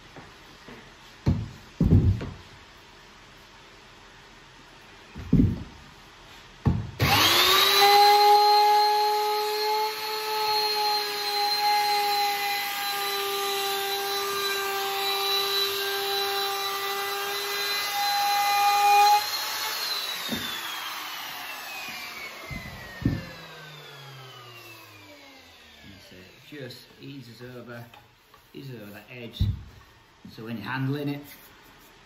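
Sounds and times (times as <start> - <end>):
router whining: 7.0 - 27.0.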